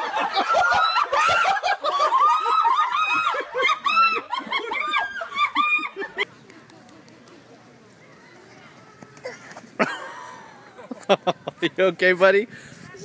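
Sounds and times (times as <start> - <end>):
high-pitched laughter: 0.0 - 6.3.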